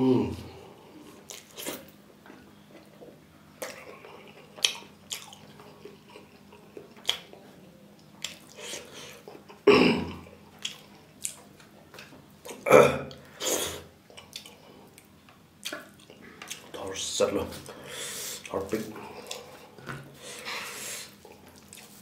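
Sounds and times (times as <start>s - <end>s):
wet chewing and lip smacks: 2.7s - 7.4s, 8.0s - 8.6s, 10.6s - 12.6s, 21.1s - 22.0s.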